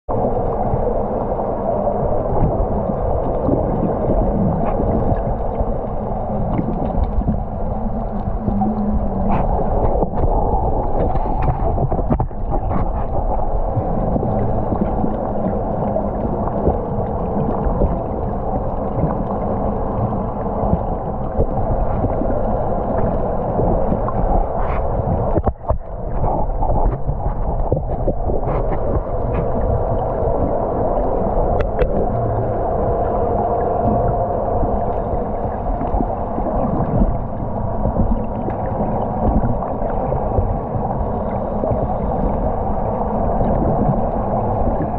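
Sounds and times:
muffled underwater rumble: 0.1 - 44.9
faint clicks: 31.5 - 32.1.

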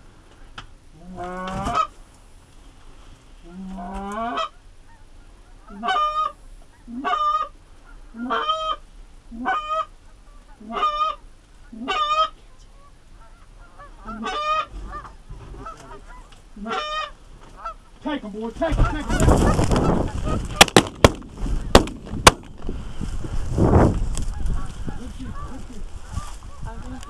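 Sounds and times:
goose honking: 1.0 - 1.9, 3.4 - 20.8, 24.3 - 27.0.

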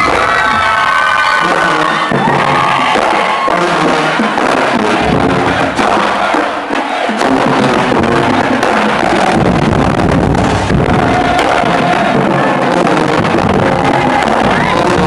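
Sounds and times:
marching band playing: 0.0 - 15.0.

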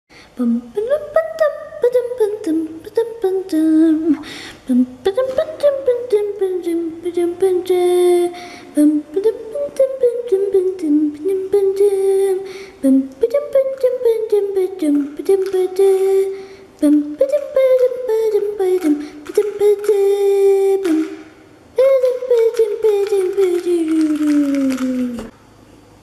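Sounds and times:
high voice humming: 0.3 - 25.4.

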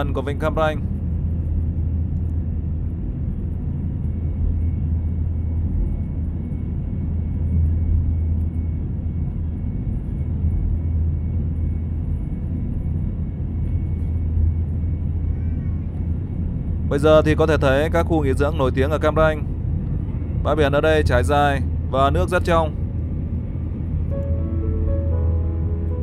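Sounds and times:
jet engine drone: 0.0 - 26.0
low hum: 0.8 - 16.9, 21.6 - 26.0.

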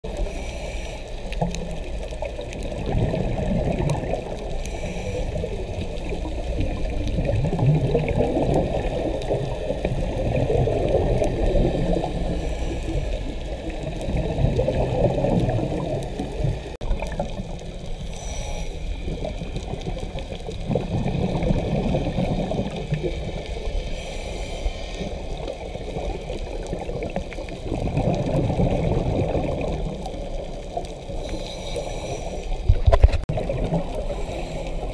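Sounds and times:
regulator inhale hiss: 0.1 - 1.7, 4.4 - 7.0, 11.4 - 14.0, 17.9 - 19.6, 23.6 - 25.8, 31.0 - 32.8, 33.9 - 34.9
bubbling exhaled air: 1.1 - 24.1, 25.0 - 34.9.

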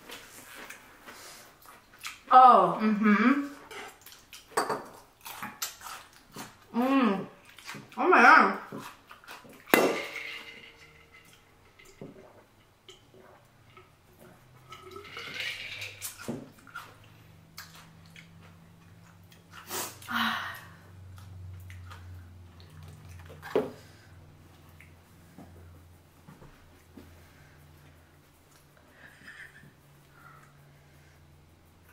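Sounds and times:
wet chewing and slurping: 3.6 - 6.7, 7.3 - 8.0, 8.6 - 9.8, 13.0 - 20.1, 21.1 - 25.0.

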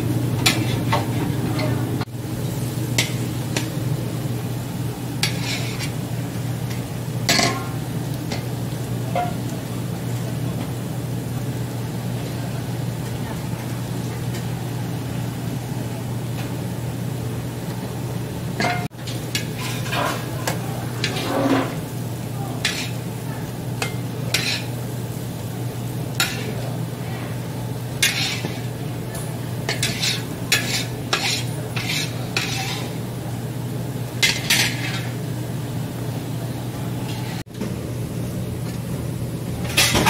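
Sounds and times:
metal ladle scraping a pan: 5.2 - 6.0, 18.6 - 20.3, 21.0 - 21.8, 22.6 - 23.0, 24.3 - 24.7, 28.0 - 28.7, 29.7 - 33.0.

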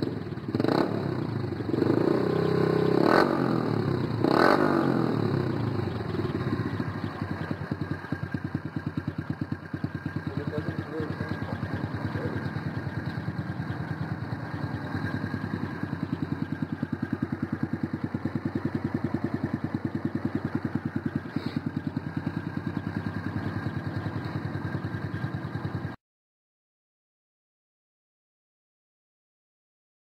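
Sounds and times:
motorcycle engine idling: 0.0 - 26.0.

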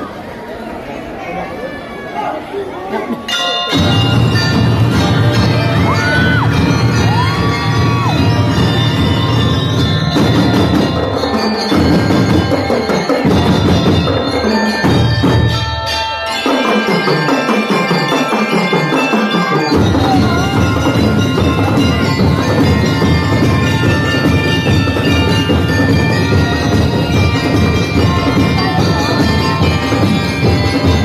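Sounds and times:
bell lyres playing melody: 3.2 - 31.0
snare drums: 3.8 - 15.6
marching bass drums: 3.8 - 15.7, 19.7 - 31.0.

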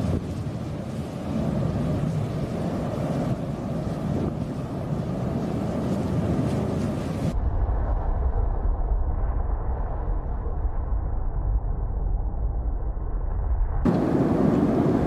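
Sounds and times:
faint crackles: 0.0 - 7.4
lava fountain rumble: 0.0 - 15.0.

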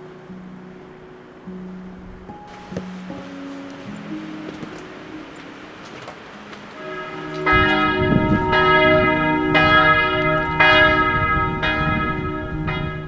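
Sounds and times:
church bell tolling: 2.4 - 13.0.

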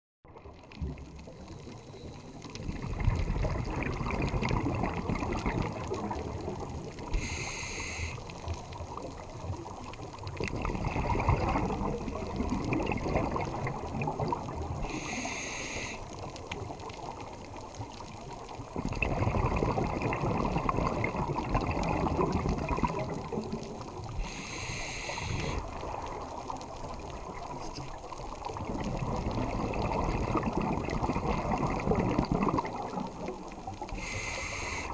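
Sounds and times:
bubbling exhale underwater: 0.3 - 34.9
scuba regulator inhale hiss: 7.1 - 8.3, 14.8 - 16.2, 24.2 - 25.6, 33.9 - 34.9.

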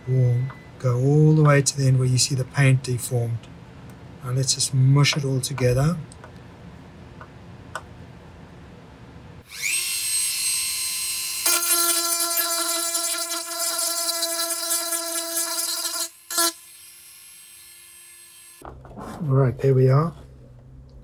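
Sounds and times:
power tool motor whining: 9.5 - 18.6.

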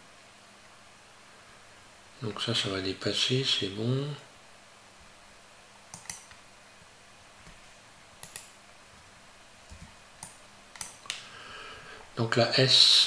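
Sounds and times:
faint steady hiss: 0.0 - 13.0
mouse and keyboard clicking: 5.9 - 6.4, 8.2 - 8.6, 9.7 - 11.2.

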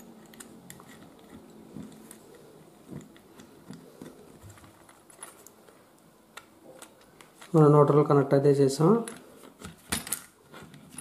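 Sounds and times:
screwdriver clicks and scrapes: 0.0 - 5.6.

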